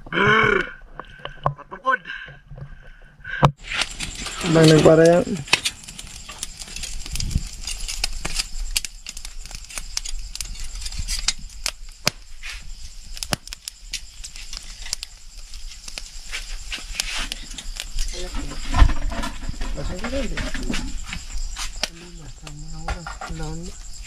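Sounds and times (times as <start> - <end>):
wood fire crackling and popping: 0.0 - 24.0
squid grilling: 3.6 - 22.8.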